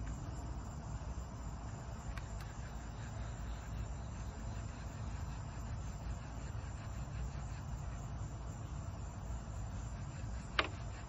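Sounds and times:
insects chirping faintly: 0.0s - 11.0s
faint clicks: 2.1s - 2.6s.

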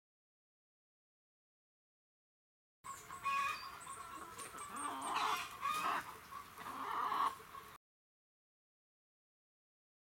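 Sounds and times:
chickens clucking: 2.9s - 7.8s.

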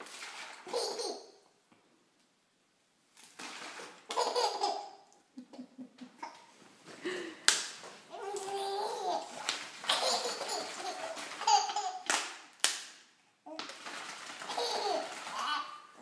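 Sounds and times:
baby laughing: 0.6s - 1.4s, 4.1s - 6.5s, 8.1s - 12.2s, 14.4s - 16.0s.

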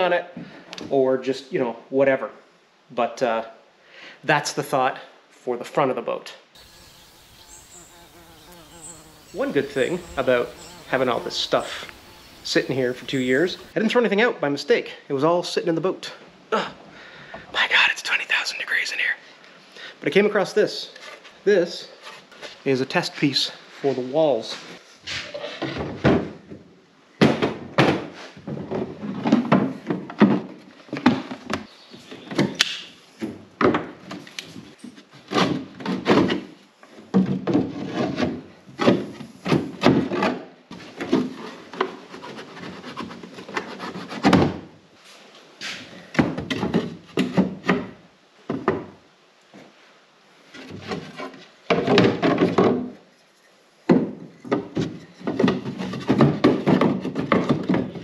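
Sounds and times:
boards scraping and sliding: 8.8s - 13.8s, 34.1s - 47.7s, 50.4s - 53.0s, 54.2s - 58.0s
wooden knocks and clunks: 9.0s - 13.7s, 25.2s - 32.6s, 33.2s - 34.7s, 35.3s - 44.7s, 46.1s - 49.0s, 50.6s - 53.0s, 53.9s - 58.0s.

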